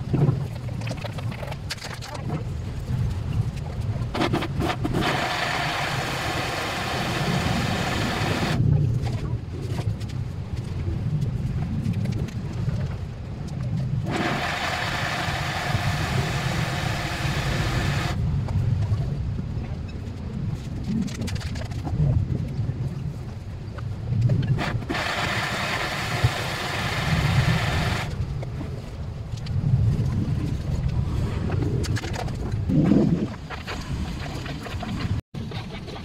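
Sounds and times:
steady low rumble: 0:00.0 - 0:36.0
electric blender running: 0:05.0 - 0:08.6, 0:14.1 - 0:18.2.

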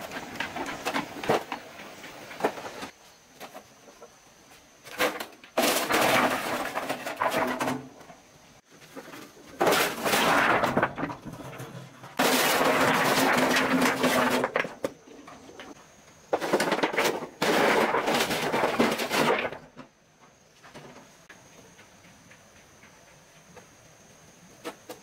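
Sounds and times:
rocks clattering from metal wheelbarrow: 0:00.0 - 0:03.7, 0:04.8 - 0:19.9.

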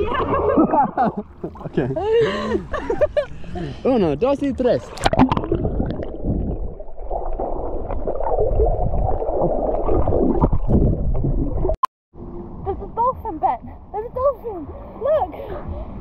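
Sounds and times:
underwater rushing and bubbling: 0:04.5 - 0:11.8.

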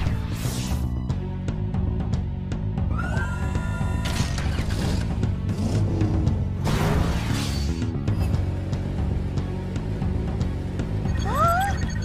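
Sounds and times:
cartoon action music: 0:11.0 - 0:12.0.

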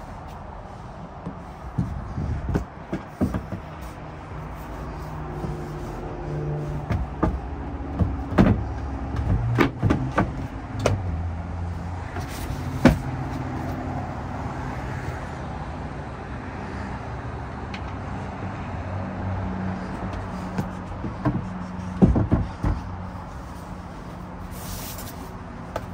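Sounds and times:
knocks of panels being handled: 0:01.2 - 0:03.9, 0:06.8 - 0:11.1, 0:12.1 - 0:13.2, 0:20.1 - 0:22.9.

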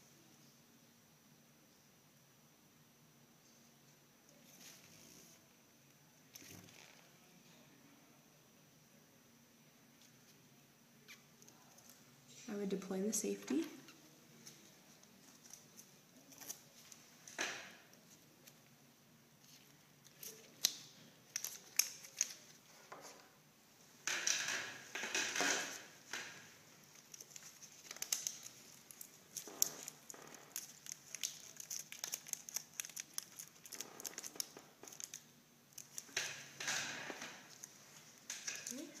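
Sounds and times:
tape crinkling and tearing: 0:14.4 - 0:18.6, 0:19.4 - 0:22.8, 0:24.1 - 0:39.0
plastic dressing rustling: 0:19.4 - 0:23.3, 0:24.0 - 0:39.0.

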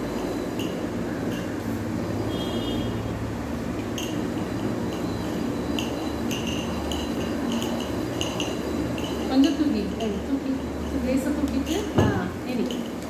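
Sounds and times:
light clinks: 0:03.8 - 0:04.3, 0:04.9 - 0:11.0, 0:11.6 - 0:13.0.

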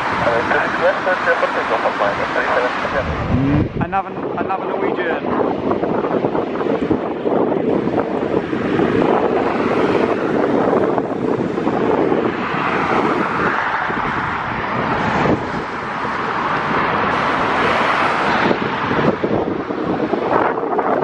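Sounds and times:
wind buffeting microphone: 0:00.0 - 0:21.0
jet engines running: 0:00.2 - 0:04.7.

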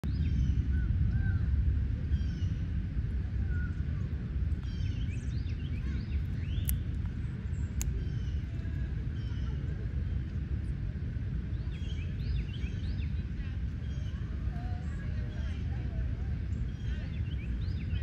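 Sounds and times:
steady low rumble: 0:00.0 - 0:18.0
small birds chirping: 0:02.1 - 0:02.7, 0:03.5 - 0:10.2, 0:11.4 - 0:18.0
sharp clicks: 0:06.5 - 0:08.0.

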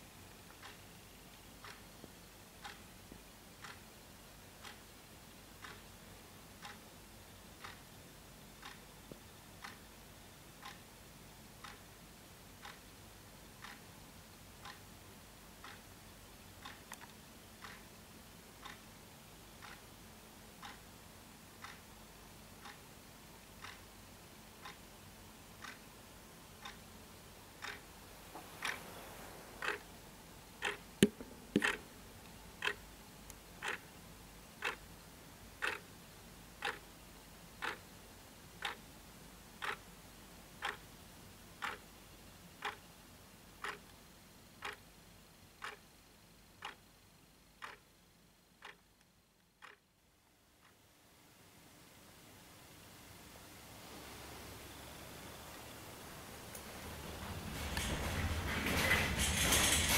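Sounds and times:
clock ticking: 0:00.3 - 0:28.0, 0:28.6 - 0:28.8, 0:29.6 - 0:36.0, 0:36.6 - 0:37.0, 0:37.6 - 0:38.0, 0:38.6 - 0:38.9, 0:39.6 - 0:39.9, 0:40.5 - 0:41.0, 0:41.6 - 0:41.9, 0:42.6 - 0:42.9, 0:43.6 - 0:44.0, 0:44.6 - 0:44.9, 0:45.6 - 0:45.9, 0:46.6 - 0:46.9, 0:47.5 - 0:47.9, 0:48.5 - 0:49.9.

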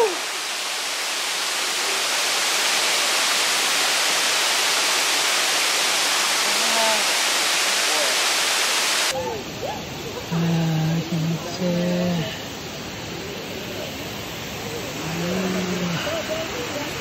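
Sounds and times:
waterfall rushing: 0:00.0 - 0:17.0
faint voice: 0:13.6 - 0:17.0.

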